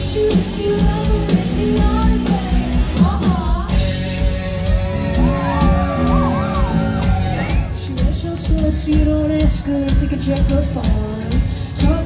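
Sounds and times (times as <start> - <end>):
woman singing: 0.0 - 4.3, 7.4 - 12.0
bass guitar: 0.0 - 12.0
drums: 0.0 - 12.0
electric guitar: 0.0 - 12.0.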